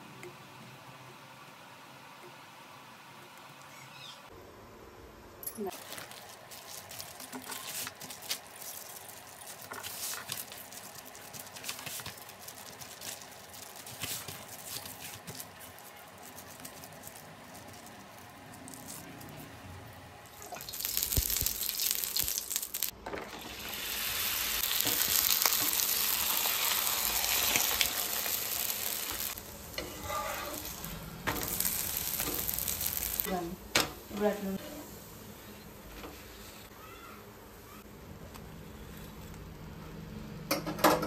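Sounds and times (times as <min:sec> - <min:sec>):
flatbread sizzling on griddle: 0:05.8 - 0:19.4, 0:20.5 - 0:37.1.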